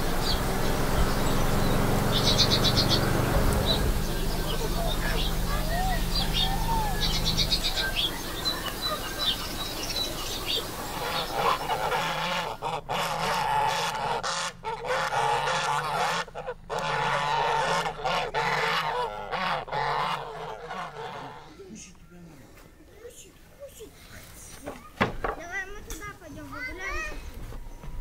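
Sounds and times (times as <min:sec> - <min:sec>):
geese honking: 0:00.0 - 0:22.0.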